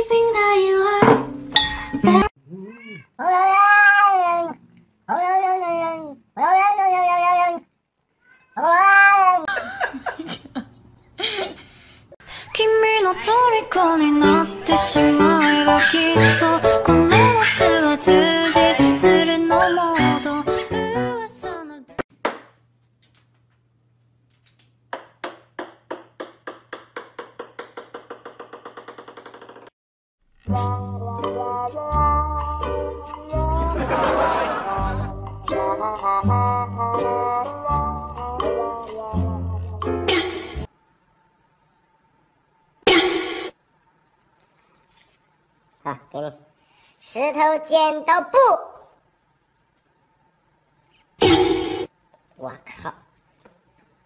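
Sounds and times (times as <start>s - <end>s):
cat meowing: 2.5s - 9.5s
ball bouncing on wooden floor: 24.9s - 29.6s.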